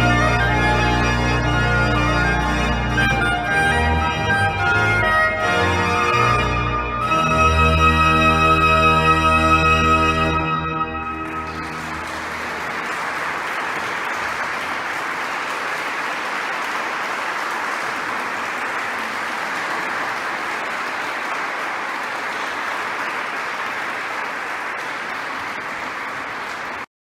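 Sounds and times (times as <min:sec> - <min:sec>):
audience applauding: 0:09.8 - 0:26.9.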